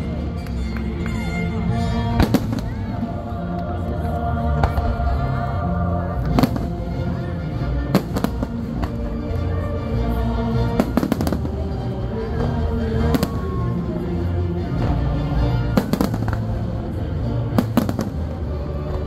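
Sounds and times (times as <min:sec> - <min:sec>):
music playing: 0:00.0 - 0:19.0
fireworks bangs: 0:17.6 - 0:18.4.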